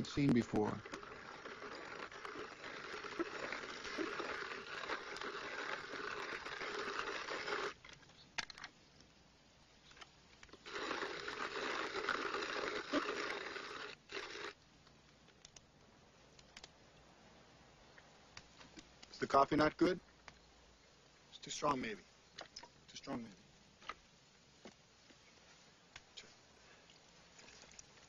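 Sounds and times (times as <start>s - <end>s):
coffee grinder grinding beans: 0.0s - 7.8s, 10.5s - 14.6s.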